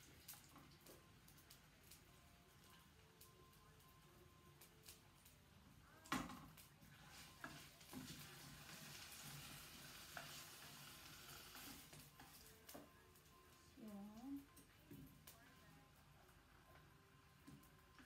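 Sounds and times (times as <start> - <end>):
vegetables sizzling in a frying pan: 0.0 - 3.3, 4.4 - 15.2.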